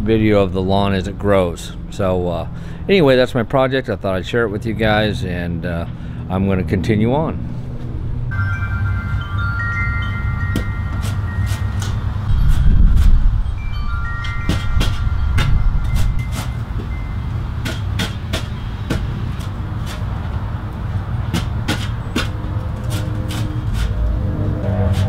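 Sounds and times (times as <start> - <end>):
low rumble: 7.4 - 17.6
short ringing tones: 8.3 - 17.6
shovel digging into dry soil: 11.0 - 13.2, 22.9 - 24.0.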